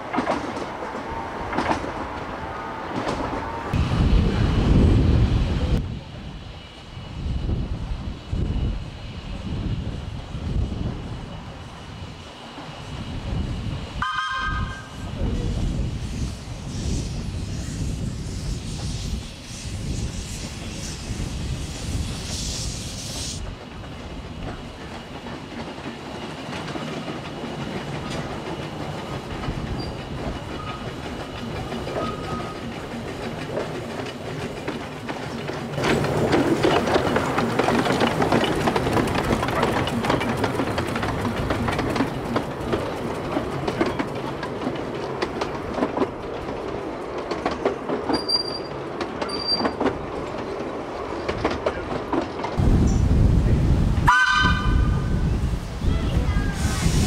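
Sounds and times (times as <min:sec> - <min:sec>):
wheels clicking over rail joints: 0:00.0 - 0:02.2, 0:23.6 - 0:52.6
steam train passing: 0:00.0 - 0:57.0.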